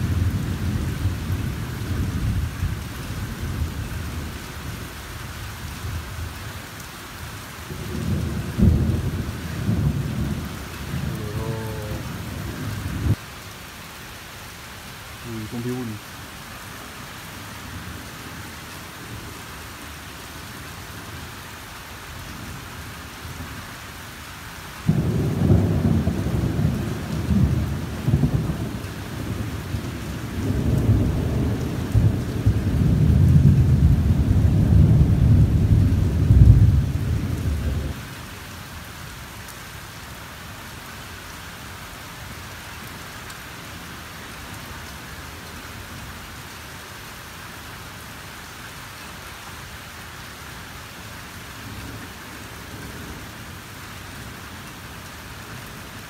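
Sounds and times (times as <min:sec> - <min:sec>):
steady rain falling: 0:00.0 - 0:56.0
thunder rumbling: 0:07.7 - 0:13.2, 0:24.8 - 0:38.0.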